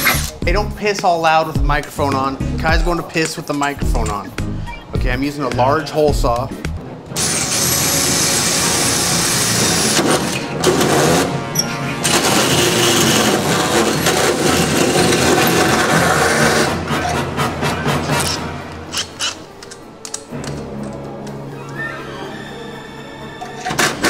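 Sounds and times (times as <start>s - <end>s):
drill cutting sheet metal: 7.2s - 11.4s, 12.0s - 17.3s.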